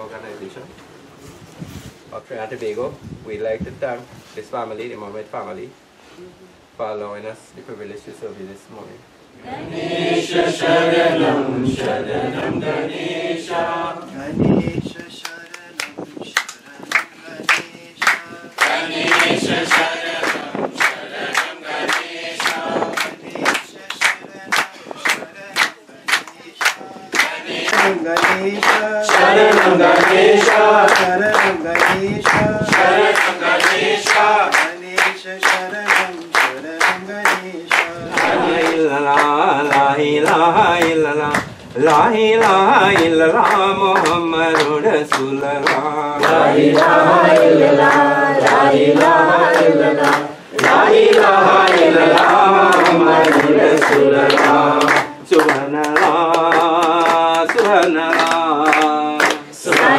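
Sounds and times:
group singing devotional song: 9.3 - 59.9
steady handclaps: 14.9 - 59.9.

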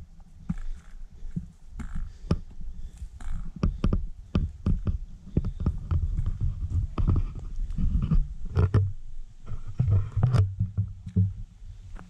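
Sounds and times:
footsteps on dirt path: 0.0 - 8.9
wind rumble on microphone: 0.0 - 12.0.

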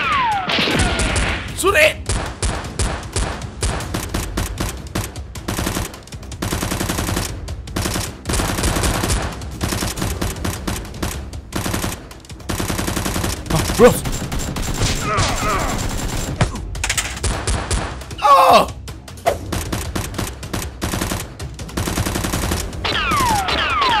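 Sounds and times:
automatic gunfire sound effects: 2.1 - 16.4, 19.4 - 24.0
toy blasters firing: 22.8 - 24.0.

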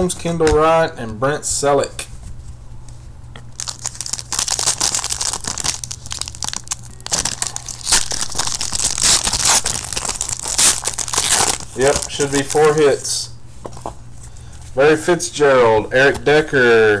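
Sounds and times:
foil wrapper crinkling: 3.5 - 13.1.

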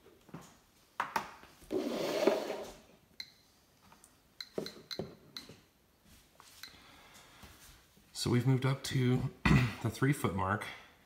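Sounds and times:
scraping on wooden tabletop: 1.7 - 2.8.

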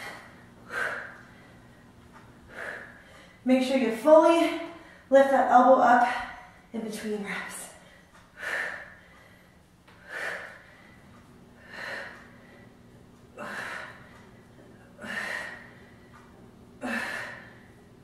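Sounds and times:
woman breathing sharply: 0.0 - 3.4, 7.8 - 17.9.

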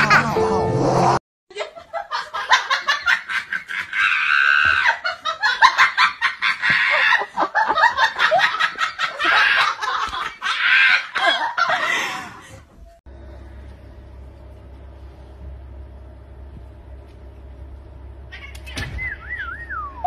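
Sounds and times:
person laughing hard: 1.5 - 12.6.

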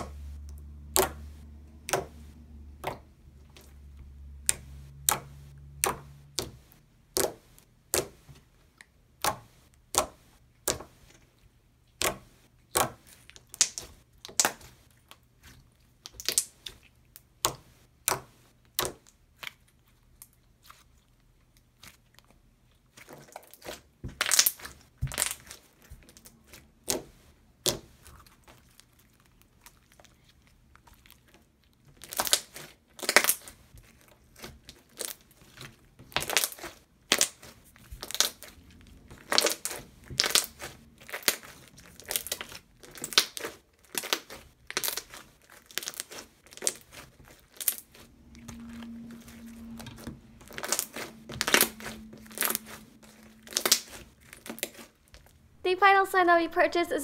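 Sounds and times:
slime clicking and popping: 0.0 - 10.9, 11.9 - 14.8, 16.0 - 19.6, 23.2 - 28.1, 31.9 - 33.6, 34.3 - 48.6, 49.7 - 55.3.

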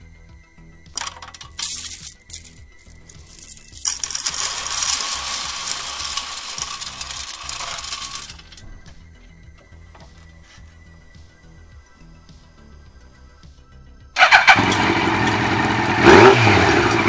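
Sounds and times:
coins jingling into metal muffler: 1.0 - 8.8.

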